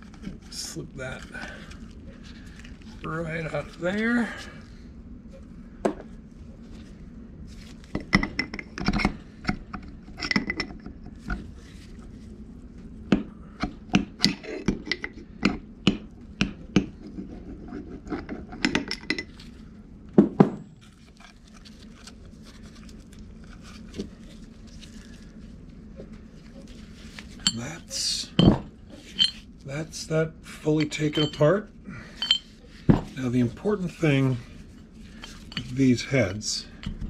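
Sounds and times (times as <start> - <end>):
metal parts clinking and scraping: 27.3 - 29.4, 30.7 - 33.2.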